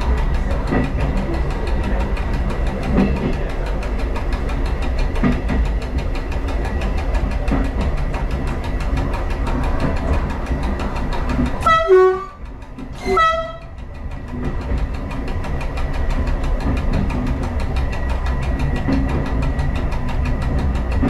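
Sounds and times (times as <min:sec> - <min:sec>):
moving train running noise: 0:00.0 - 0:21.0
two-note train horn blast: 0:11.6 - 0:12.4, 0:13.0 - 0:13.7.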